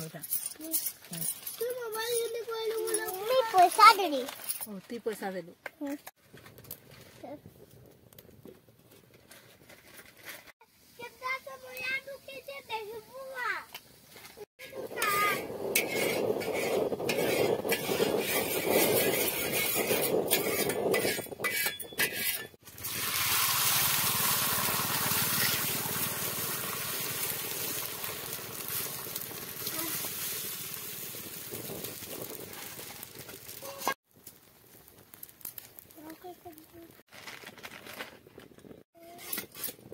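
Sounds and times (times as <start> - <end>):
metal spatula scraping iron pan: 14.6 - 22.6
egg sizzling on hot iron: 22.6 - 36.8.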